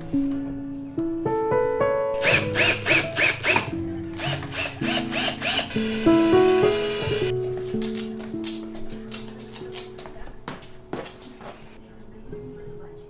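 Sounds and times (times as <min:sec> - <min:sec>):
acoustic guitar music: 0:02.1 - 0:11.8
drill clutch ratcheting clicks: 0:02.2 - 0:07.3.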